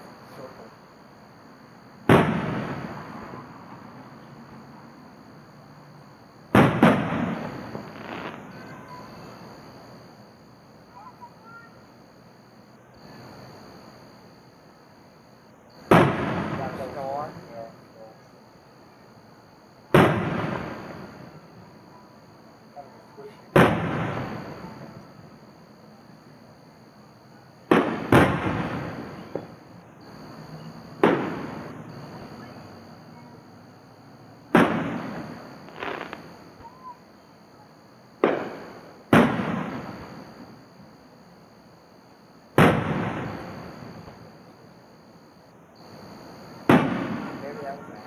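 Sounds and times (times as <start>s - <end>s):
distant fireworks bursting: 1.5s - 11.8s, 12.9s - 17.8s, 19.2s - 21.8s, 22.8s - 41.3s, 42.2s - 48.0s
light firework pop: 27.7s - 29.6s, 31.0s - 31.7s, 38.2s - 40.2s, 46.7s - 47.3s.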